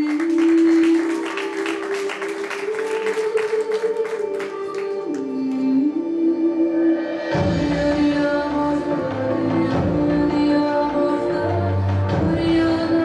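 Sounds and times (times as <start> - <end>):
audience applause: 0.0 - 5.3
slow melodic music: 0.2 - 13.0.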